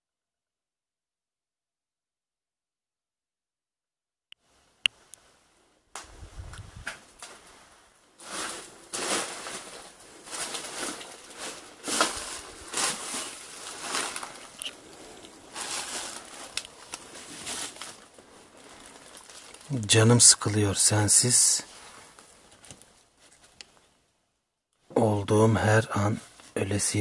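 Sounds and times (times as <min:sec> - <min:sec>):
paper rustling and crinkling: 0:08.2 - 0:19.8, 0:21.6 - 0:23.6.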